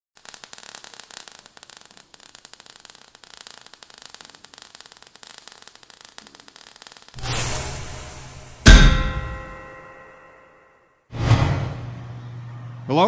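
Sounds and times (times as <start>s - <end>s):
crackling sparks: 0.2s - 10.2s.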